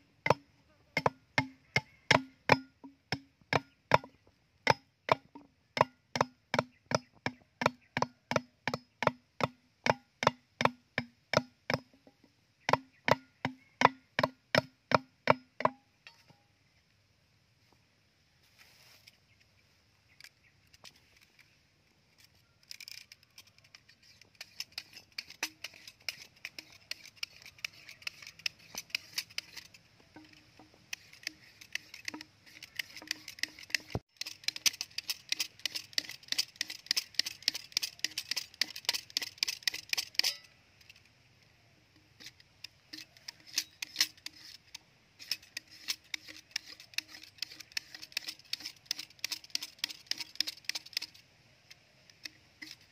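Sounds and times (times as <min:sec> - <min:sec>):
knife scraping bamboo: 0:20.1 - 0:41.0, 0:42.0 - 0:52.9.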